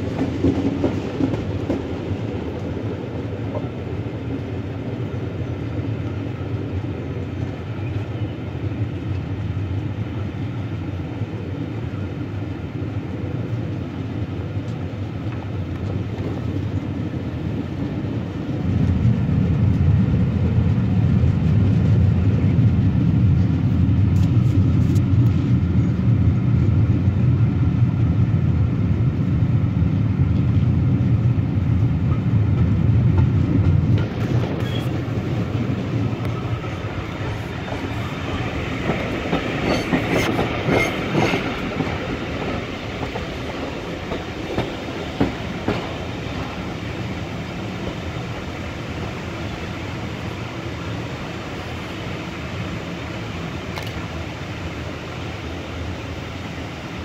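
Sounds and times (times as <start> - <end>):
train wheels rumbling on rail: 0.0 - 57.0.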